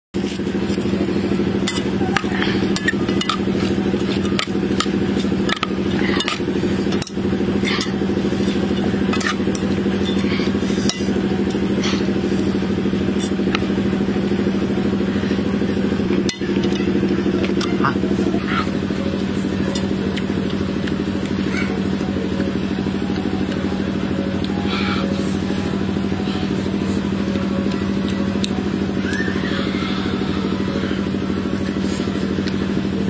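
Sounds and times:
low mechanical drone: 0.1 - 33.0
utensils clinking on metal bowl: 0.2 - 13.4.

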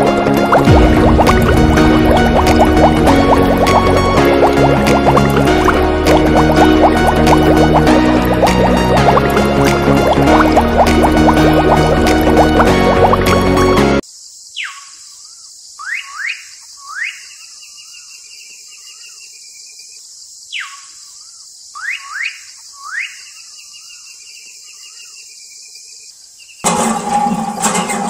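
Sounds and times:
music: 0.0 - 14.0, 26.7 - 28.0
bird whistling song: 15.8 - 18.0, 21.8 - 24.0.

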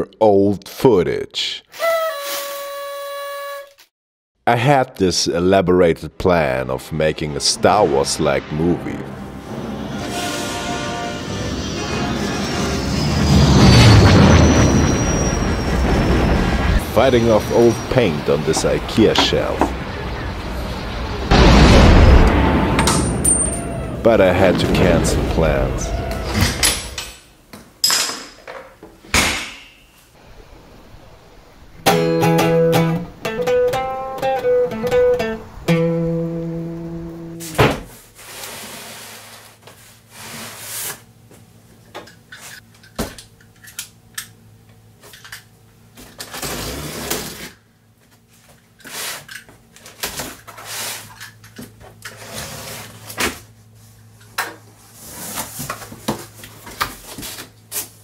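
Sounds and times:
low steady hum: 30.2 - 37.5
plucked string jingle: 31.8 - 37.4.

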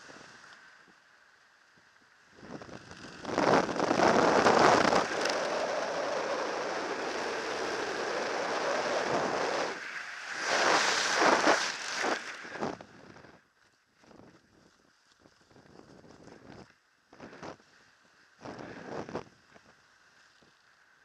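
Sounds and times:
wind rushing over microphone: 2.4 - 13.3.

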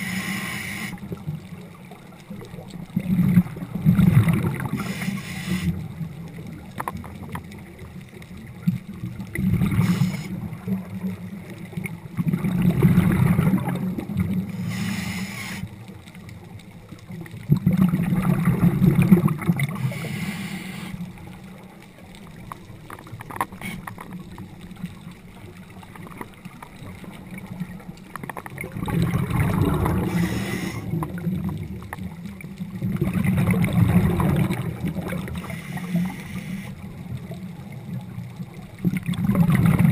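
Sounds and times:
regulator inhale hiss: 0.0 - 1.1, 4.7 - 5.9, 9.7 - 10.5, 14.5 - 15.8, 19.8 - 21.1, 30.0 - 31.0, 35.4 - 36.9
exhaled bubbles underwater: 0.0 - 39.9.

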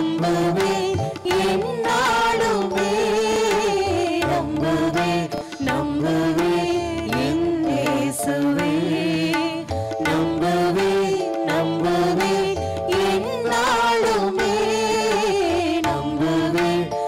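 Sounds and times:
choir singing a hymn: 0.0 - 9.4, 10.0 - 17.0
steady percussion beat: 0.0 - 16.8
instrumental accompaniment: 0.0 - 17.0.

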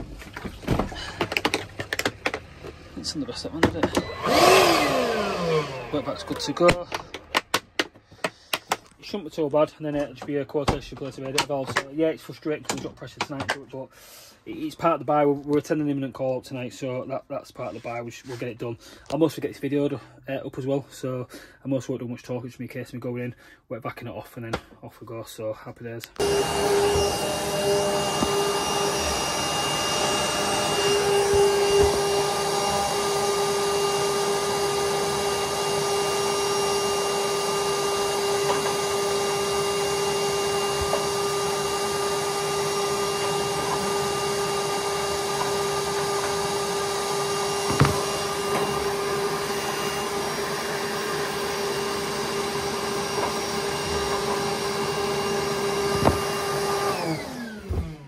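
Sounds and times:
wet vac motor humming: 0.9 - 7.4, 26.2 - 58.0.

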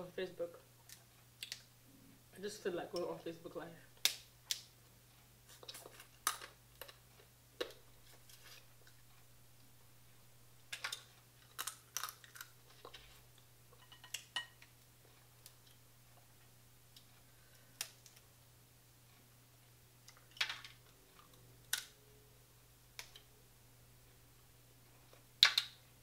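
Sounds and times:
crab legs cracking: 11.4 - 12.6.

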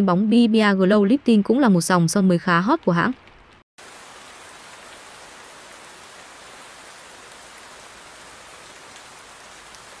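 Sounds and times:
steady rain hiss: 3.2 - 10.0.

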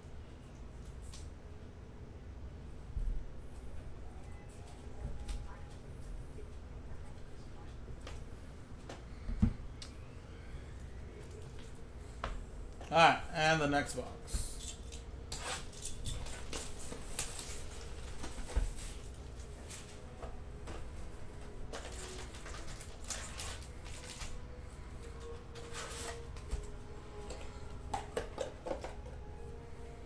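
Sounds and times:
foil packs crinkling: 15.7 - 19.9, 21.7 - 24.5
plastic wrap tearing: 21.7 - 24.4.

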